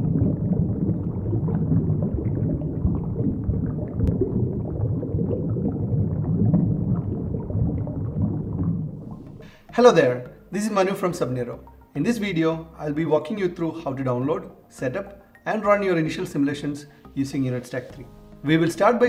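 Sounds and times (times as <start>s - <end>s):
underwater rumble and bubbling: 0.0s - 9.4s.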